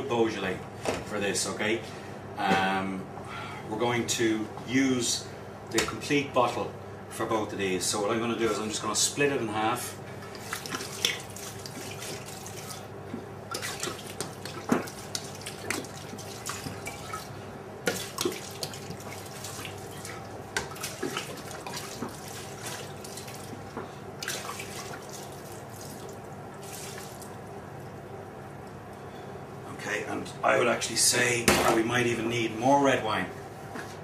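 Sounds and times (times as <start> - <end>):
wine pouring and splashing: 10.3 - 12.9, 13.5 - 27.5.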